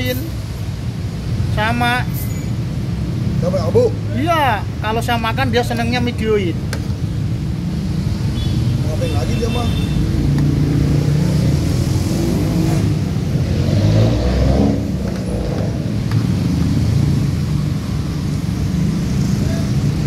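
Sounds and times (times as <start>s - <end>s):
traffic running steadily: 0.0s - 20.0s
engine revving and passing: 10.0s - 20.0s.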